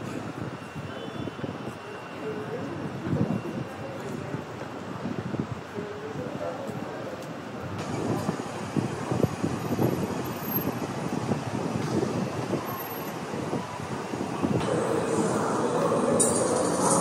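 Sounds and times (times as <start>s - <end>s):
subway train rumbling: 0.0s - 17.0s
steady whine: 14.6s - 17.0s.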